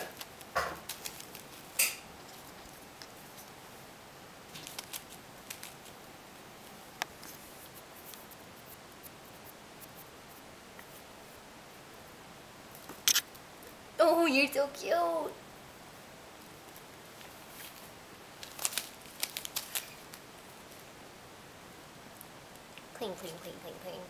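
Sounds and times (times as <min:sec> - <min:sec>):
rustles: 0:00.0 - 0:13.8, 0:15.8 - 0:21.1.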